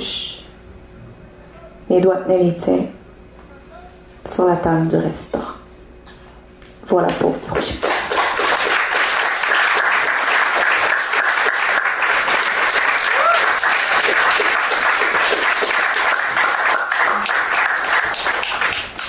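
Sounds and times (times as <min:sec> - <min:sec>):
audience applauding: 0:07.6 - 0:19.0.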